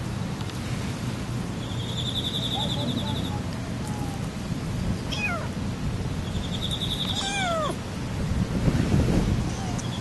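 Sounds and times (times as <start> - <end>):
kitten meowing: 5.1 - 5.5, 7.0 - 7.8, 9.4 - 10.0.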